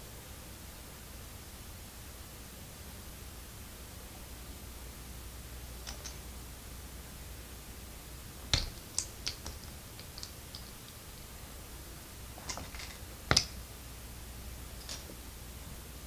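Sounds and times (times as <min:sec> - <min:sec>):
plastic bricks clicking together: 0:05.9 - 0:06.2, 0:08.5 - 0:11.0, 0:12.4 - 0:13.6.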